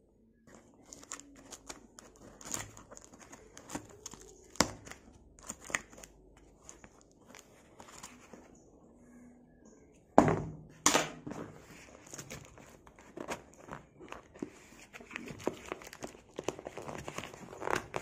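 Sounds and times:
packaging crinkling and rustling: 0:00.5 - 0:08.4, 0:11.6 - 0:18.0.

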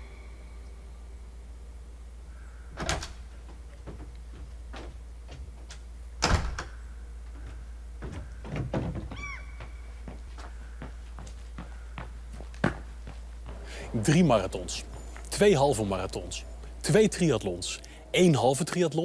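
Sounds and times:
low steady hum: 0:00.0 - 0:19.0
footsteps on front steps: 0:03.3 - 0:06.0, 0:07.2 - 0:18.0.

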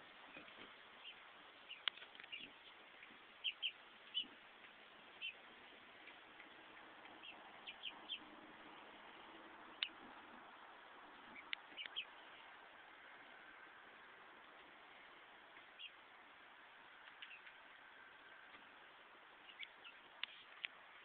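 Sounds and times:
chickens cheeping: 0:03.4 - 0:04.4, 0:07.0 - 0:08.9, 0:11.2 - 0:12.2, 0:15.6 - 0:16.0.

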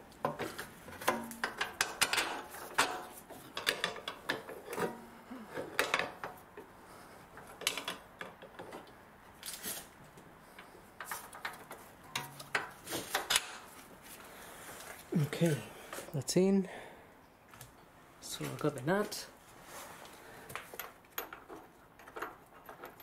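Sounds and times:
metal bolt clicking and scraping: 0:00.3 - 0:05.0, 0:20.6 - 0:23.0.

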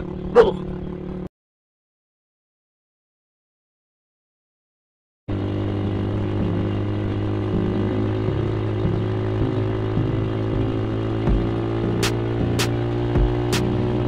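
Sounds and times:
motorcycle engine running: 0:00.0 - 0:01.3, 0:05.3 - 0:14.0
wind and road noise: 0:00.0 - 0:01.3, 0:05.3 - 0:14.0.

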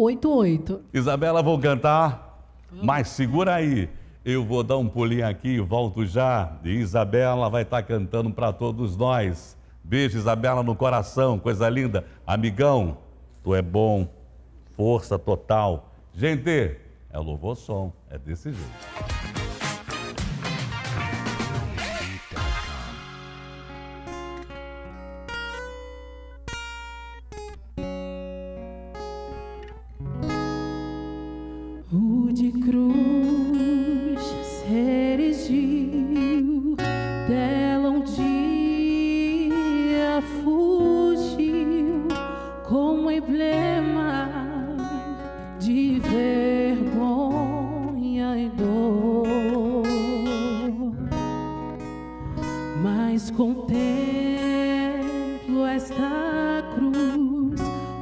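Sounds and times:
acoustic guitar chords: 0:18.5 - 0:58.0
woman singing: 0:31.9 - 0:51.4, 0:52.7 - 0:58.0.

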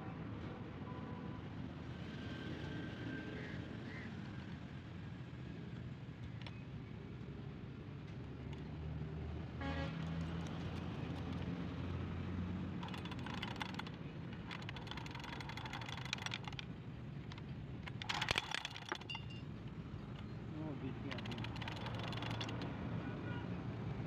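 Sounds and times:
metal tools clicking and rattling: 0:12.8 - 0:20.4, 0:21.0 - 0:22.7.

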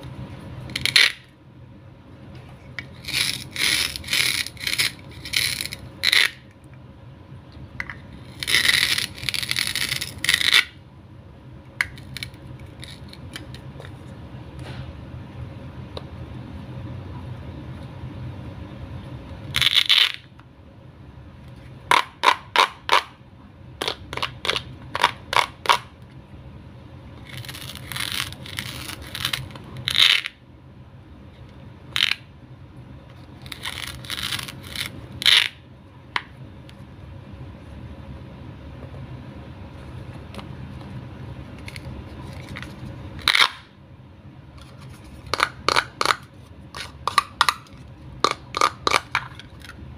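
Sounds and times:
velcro tearing: 0:03.0 - 0:06.4, 0:27.2 - 0:30.2, 0:33.4 - 0:35.5.

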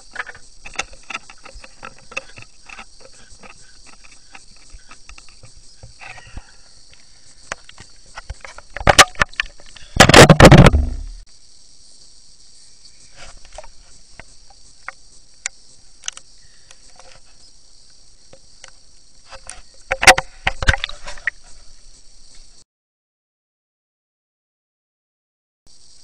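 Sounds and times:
underwater clicks and knocks: 0:07.5 - 0:11.1, 0:18.3 - 0:21.4.

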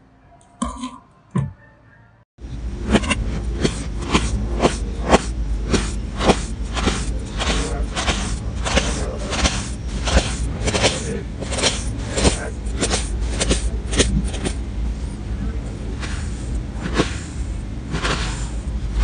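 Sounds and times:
knife slicing through sand: 0:16.0 - 0:19.0.

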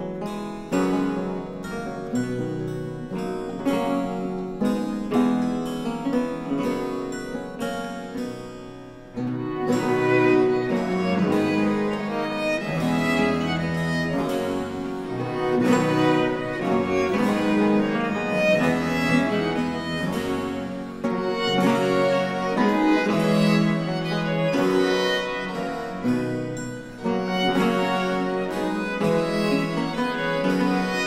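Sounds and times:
harpsichord: 0:00.0 - 0:31.0
plucked chords: 0:00.0 - 0:31.0
violins and violas playing: 0:09.2 - 0:31.0.

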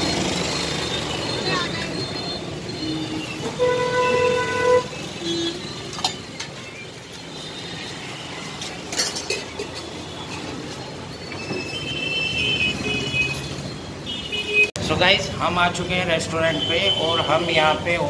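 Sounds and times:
street traffic noise: 0:00.0 - 0:18.0
vehicle horn: 0:03.1 - 0:05.8.

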